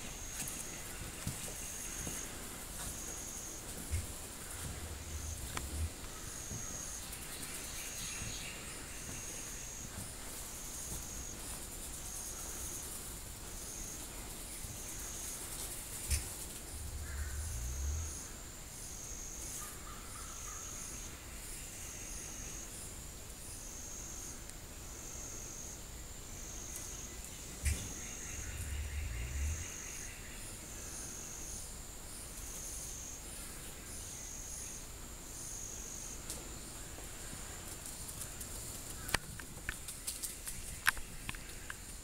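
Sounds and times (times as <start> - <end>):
insects buzzing: 0.0 - 42.0
deep low hum: 3.9 - 6.6, 15.9 - 18.8, 27.7 - 30.1
turkey spit and drum: 16.0 - 17.7.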